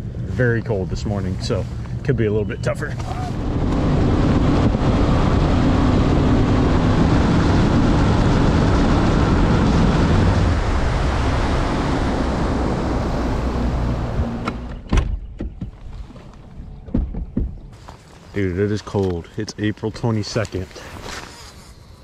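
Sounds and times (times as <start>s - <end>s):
outboard motor drone: 0.0s - 14.9s
wind and water rush: 2.8s - 14.7s
sharp knocks: 16.8s - 17.7s.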